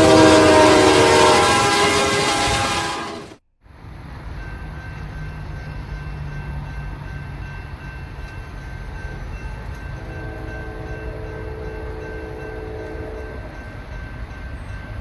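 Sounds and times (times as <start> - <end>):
distant locomotive horn: 0.0 - 3.4, 10.0 - 13.7
freight train rumbling: 0.0 - 15.0.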